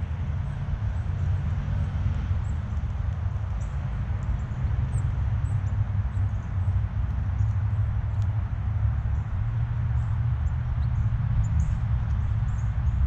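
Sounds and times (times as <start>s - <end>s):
small birds chirping: 0.5s - 13.0s.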